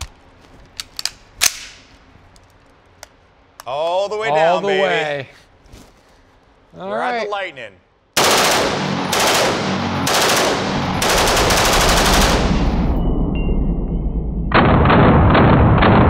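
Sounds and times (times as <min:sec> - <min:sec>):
rifle firing automatic bursts: 0:08.2 - 0:12.8.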